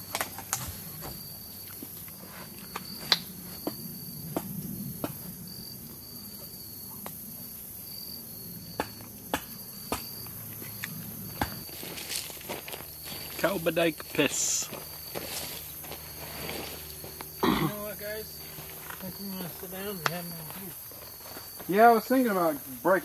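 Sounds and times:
insects chorus pulsing: 0.0s - 23.0s.

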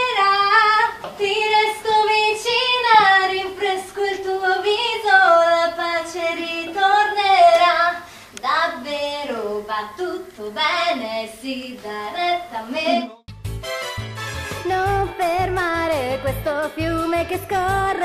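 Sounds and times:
woman singing: 0.0s - 13.2s, 14.6s - 18.0s.

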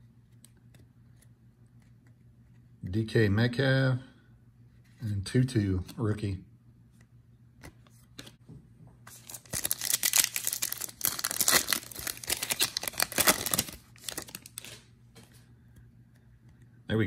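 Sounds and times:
foil wrapper tearing and crinkling: 9.1s - 14.8s.

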